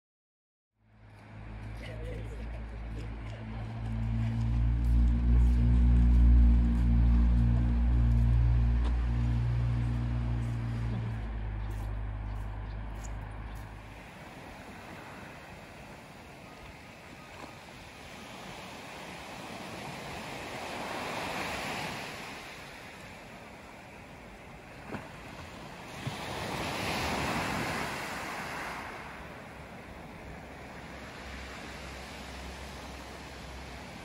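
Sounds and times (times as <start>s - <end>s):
wind on microphone: 3.4s - 22.8s
waves breaking on pebble beach: 13.8s - 34.0s.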